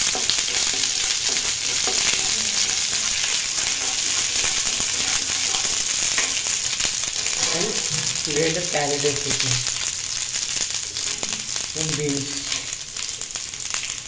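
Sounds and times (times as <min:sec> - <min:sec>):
wooden spatula stirring: 0:00.0 - 0:09.4
paste sizzling in hot oil: 0:00.0 - 0:14.0.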